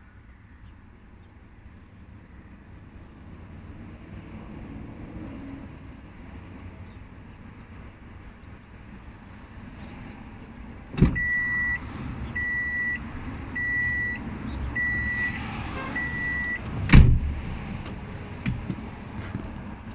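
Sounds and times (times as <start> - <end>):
car door opening knock: 11.0 - 11.5, 16.8 - 17.6
car door shutting thud: 11.0 - 11.5, 16.8 - 17.6
car warning chime beeping: 11.1 - 16.6.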